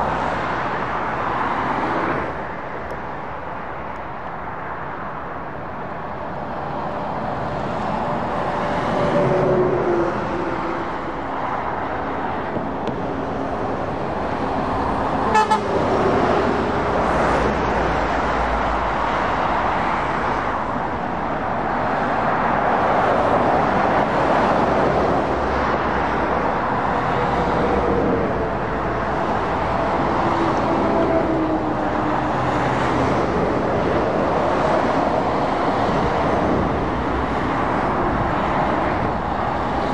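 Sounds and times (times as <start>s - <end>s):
motorway traffic passing: 0.0s - 39.9s
short horn toot: 15.3s - 15.7s.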